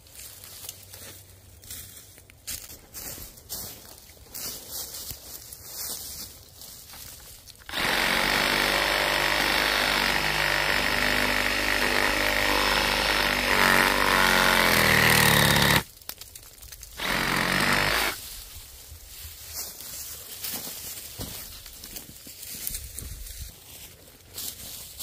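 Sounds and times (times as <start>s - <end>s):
reciprocating saw cutting wood: 7.7s - 15.9s, 17.0s - 18.2s.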